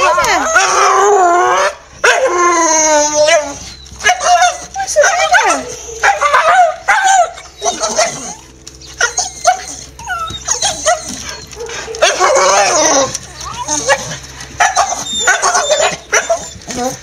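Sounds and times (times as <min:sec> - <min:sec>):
dog yipping and whining: 0:01.5 - 0:17.0
dog barking excitedly: 0:04.0 - 0:08.4, 0:10.4 - 0:17.0.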